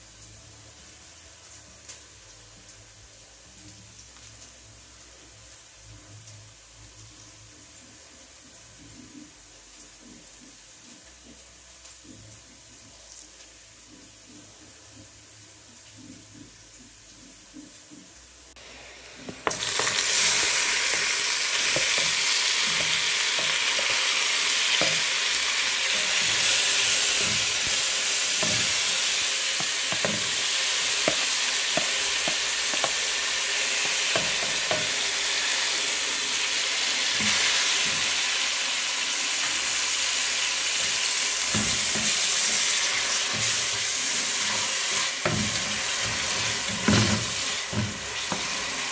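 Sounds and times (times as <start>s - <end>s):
onions and tomatoes sizzling in oil: 0.0s - 48.9s
spatula scraping and tapping pot: 19.2s - 35.2s, 40.7s - 48.9s.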